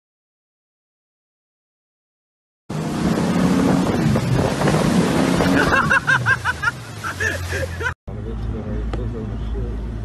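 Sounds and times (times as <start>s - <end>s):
heavy wind: 2.7s - 7.8s
rushing water and spray: 2.7s - 8.0s
boat motor running: 2.7s - 10.0s.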